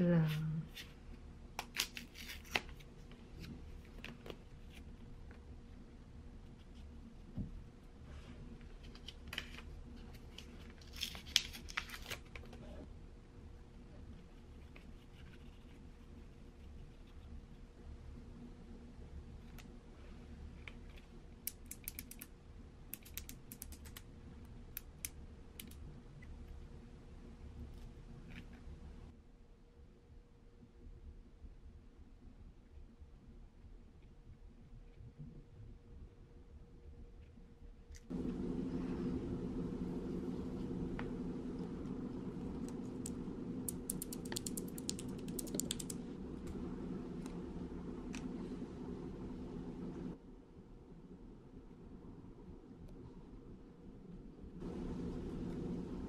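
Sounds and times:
small plastic clicks and ticks: 0:20.7 - 0:22.3, 0:22.9 - 0:24.0, 0:24.7 - 0:25.8, 0:43.0 - 0:46.0
steady low hum: 0:35.2 - 0:56.0.

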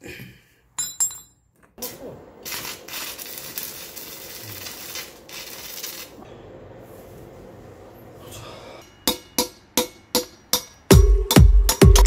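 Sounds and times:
steady hiss: 0:01.8 - 0:08.9.

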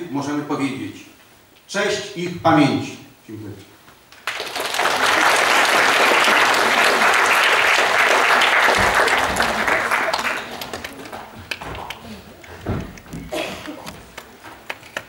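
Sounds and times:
audience applauding: 0:04.1 - 0:12.1, 0:13.6 - 0:15.0.

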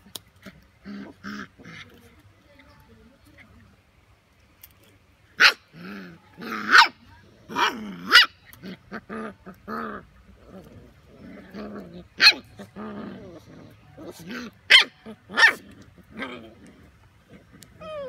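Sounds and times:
puppies growling and whining: 0:05.7 - 0:18.0
puppies yipping and barking: 0:07.6 - 0:16.4, 0:17.6 - 0:18.0.

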